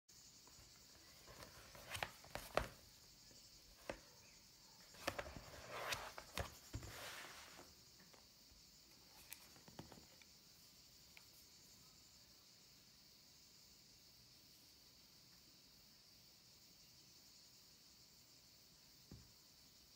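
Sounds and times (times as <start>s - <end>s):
leather sleeve rubbing and sliding: 1.2s - 2.8s, 4.9s - 7.7s.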